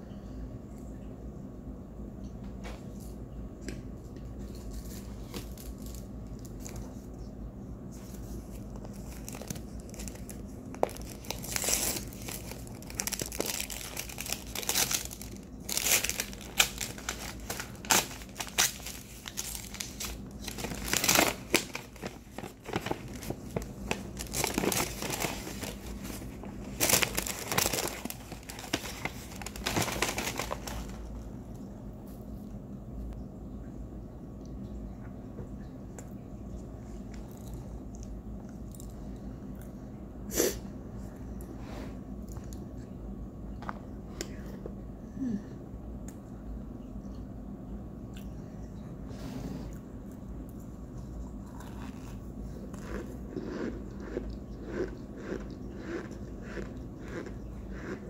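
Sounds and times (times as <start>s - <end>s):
packaging crinkling: 4.5s - 7.0s, 8.0s - 31.3s.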